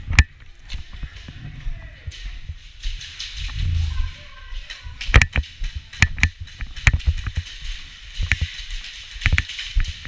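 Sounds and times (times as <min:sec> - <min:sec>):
sharp irregular clicks and knocks: 0:04.6 - 0:10.0.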